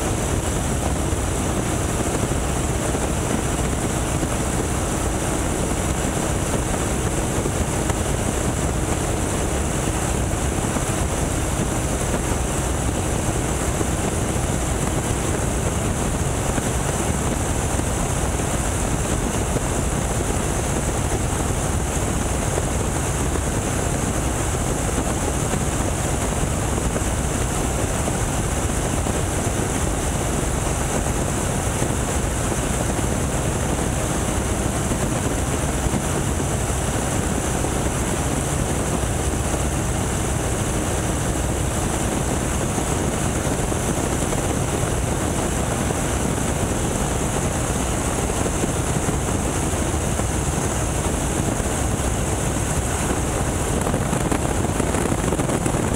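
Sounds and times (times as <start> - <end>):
aircraft engine and propeller: 0.0 - 55.9
wind rushing: 30.2 - 55.9.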